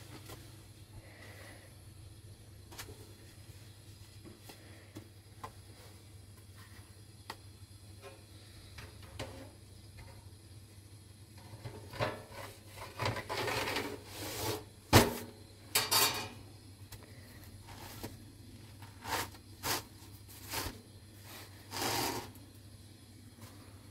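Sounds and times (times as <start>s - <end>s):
rolling pin rubbing dough: 18.8s - 22.3s.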